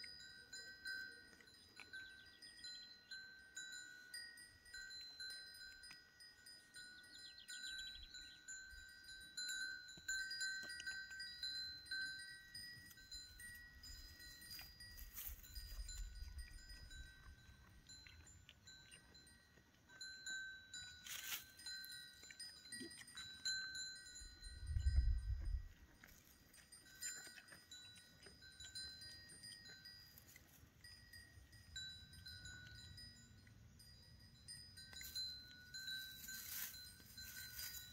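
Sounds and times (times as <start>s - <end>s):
chimes ringing: 0.0s - 25.3s, 26.5s - 37.9s.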